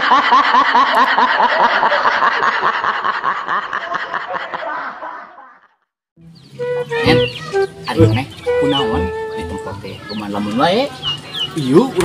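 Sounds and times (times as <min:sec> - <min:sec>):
high-pitched snickering laugh: 0:00.0 - 0:05.8.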